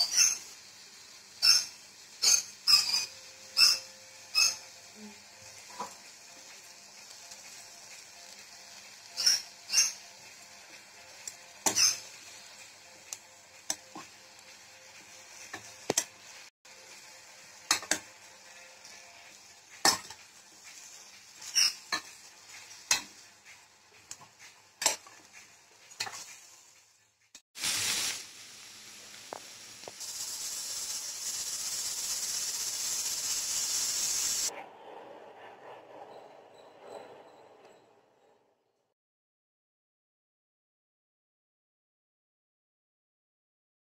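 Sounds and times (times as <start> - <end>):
spoon scraping a pan: 0.0 - 16.4, 17.6 - 26.7
loud sizzling hiss: 0.0 - 26.9, 27.6 - 34.5
mushrooms sizzling in a pan: 0.0 - 34.5.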